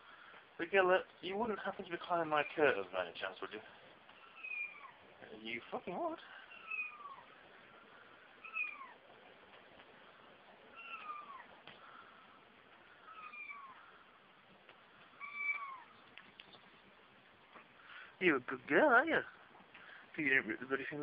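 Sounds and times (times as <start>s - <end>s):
kitten meowing: 4.2s - 5.0s, 6.5s - 7.3s, 8.4s - 9.1s, 10.7s - 11.6s, 13.1s - 13.8s, 15.2s - 16.0s.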